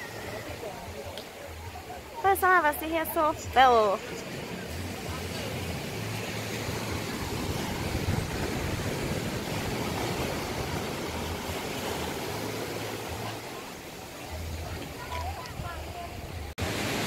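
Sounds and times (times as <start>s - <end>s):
surf breaking on beach: 3.9s - 16.0s, 16.6s - 17.0s
wind buffeting microphone: 7.1s - 11.7s.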